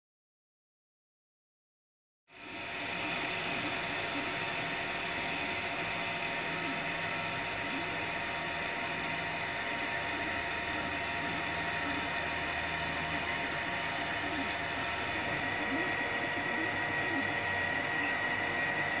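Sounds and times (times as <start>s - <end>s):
printer fans whirring: 2.3s - 19.0s
stepper motors humming: 2.4s - 19.0s.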